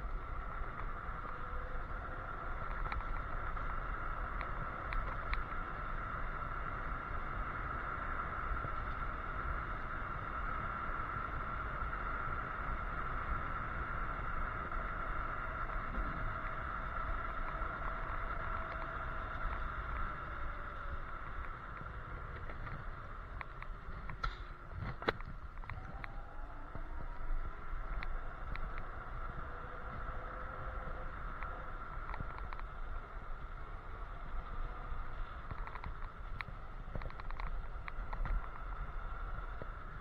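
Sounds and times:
electric scooter motor whine: 0:00.0 - 0:40.0
tyres on road: 0:00.0 - 0:40.0
wind on microphone: 0:00.0 - 0:40.0.

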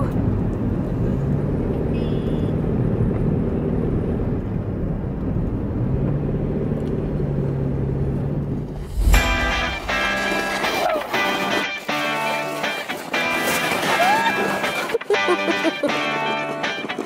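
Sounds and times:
car engine and tyres rumbling: 0:00.0 - 0:10.9.

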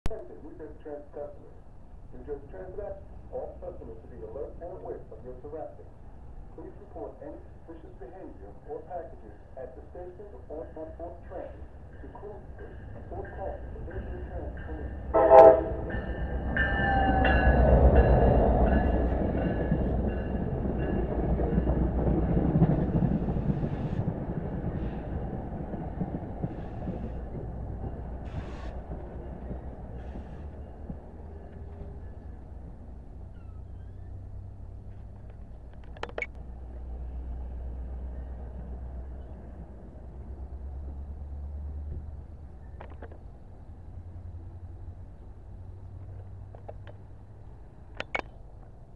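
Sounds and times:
diesel locomotive engine passing: 0:00.1 - 0:48.9
train coaches rumbling on rails: 0:00.1 - 0:48.9
clatter of sharp clicks: 0:35.2 - 0:36.4, 0:47.9 - 0:48.4.

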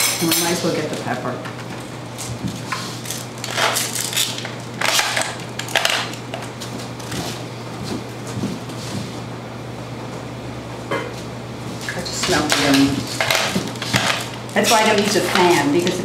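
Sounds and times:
steady low hum: 0:00.0 - 0:16.0
kitchen clatters and scrapes: 0:02.6 - 0:07.4, 0:11.8 - 0:16.0.

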